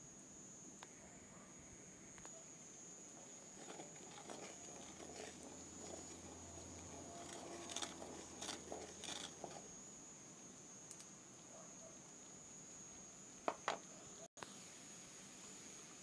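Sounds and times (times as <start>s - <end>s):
faint sizzling: 0.0s - 16.0s
wooden spoon scraping a pot: 3.2s - 9.7s.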